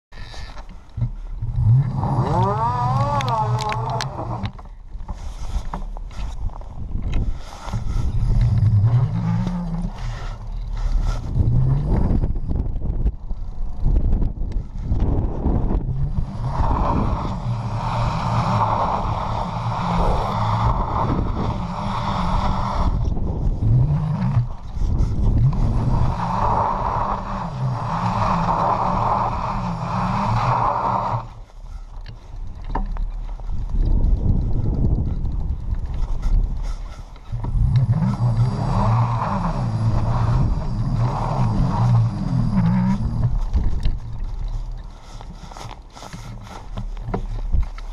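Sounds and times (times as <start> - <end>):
low steady rumble: 0.1 - 47.9
electric bike motor whining: 0.2 - 47.9
tyre churning snow hiss: 16.0 - 23.0, 23.9 - 31.3, 37.6 - 43.5.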